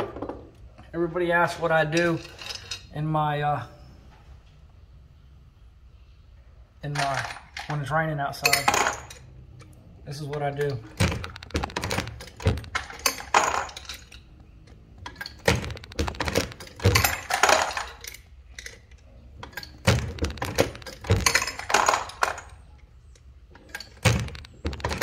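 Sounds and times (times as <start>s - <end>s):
metallic clicks and clinks: 6.9s - 25.0s.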